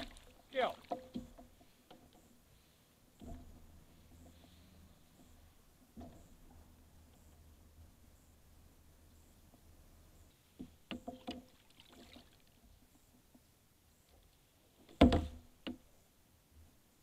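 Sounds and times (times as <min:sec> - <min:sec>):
knocks against plastic kayak hull: 0:15.0 - 0:15.8.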